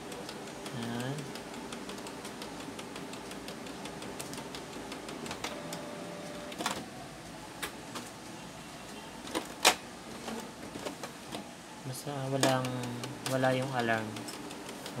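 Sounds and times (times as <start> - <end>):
printer sharp clacks: 0.0 - 6.9, 12.3 - 15.0
printer mechanism whirring: 0.0 - 15.0.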